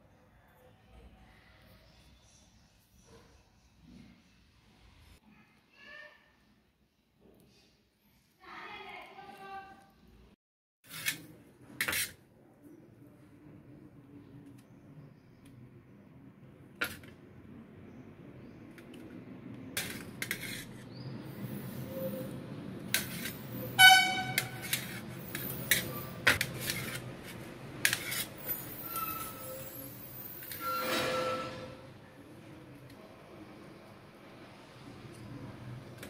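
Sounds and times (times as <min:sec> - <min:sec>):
short horn-like toot: 0:23.7 - 0:24.4.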